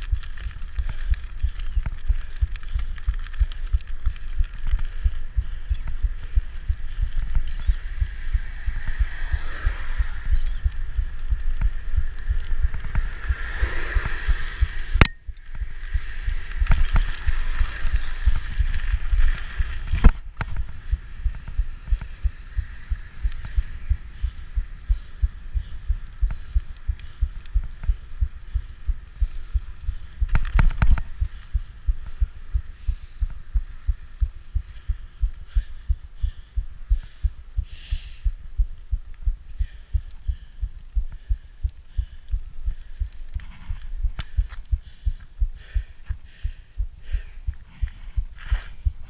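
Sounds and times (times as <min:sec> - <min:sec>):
bike tyres rumbling over path: 0:00.0 - 0:35.6
wind buffeting microphone: 0:00.0 - 0:37.6.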